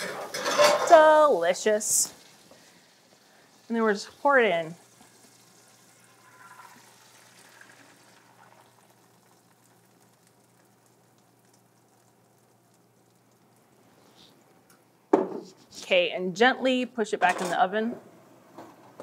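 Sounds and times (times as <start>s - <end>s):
batter sizzling and pouring: 0.0s - 14.7s.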